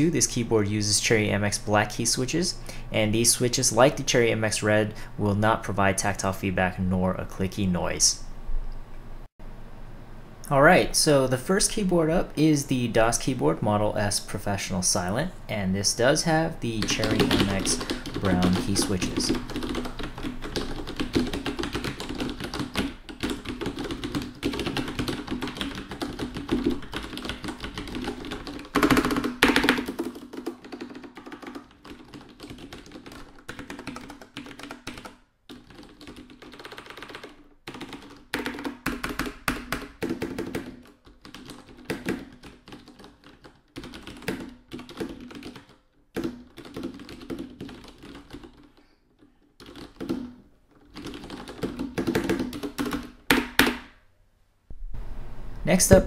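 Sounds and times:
keyboard typing: 16.7s - 53.9s.

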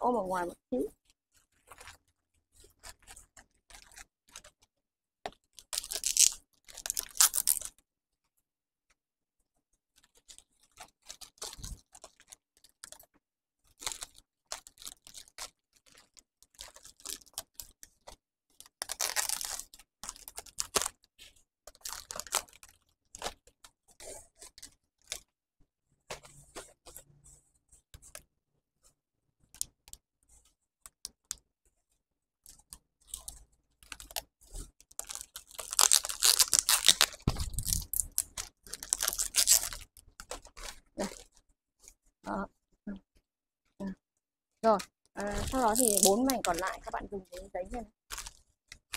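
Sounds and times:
wrapping paper rustling: 1.0s - 4.7s, 5.3s - 7.8s, 9.9s - 25.4s, 32.4s - 42.0s, 44.7s - 48.9s.

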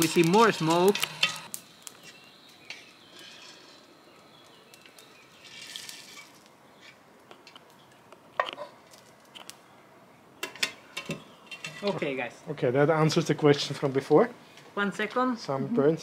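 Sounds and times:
coffee beans rattling out: 0.0s - 1.5s.

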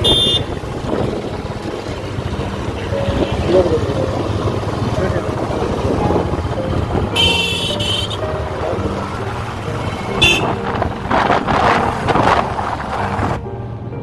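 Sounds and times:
vehicle horn honking: 0.0s - 0.6s, 7.1s - 8.3s, 10.1s - 10.6s
wind buffeting microphone: 0.0s - 3.3s, 9.5s - 13.4s
motorcycle engine running: 0.0s - 13.3s.

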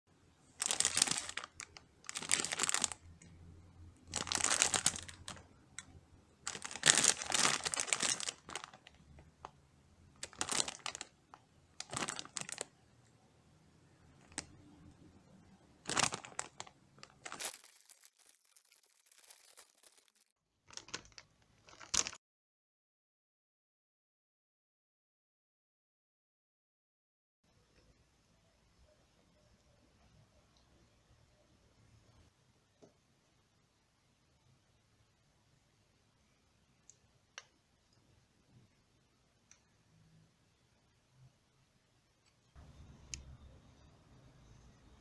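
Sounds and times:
plastic bag crinkling: 0.5s - 3.3s, 4.0s - 9.6s, 10.2s - 12.7s, 14.2s - 14.6s, 15.8s - 22.2s.

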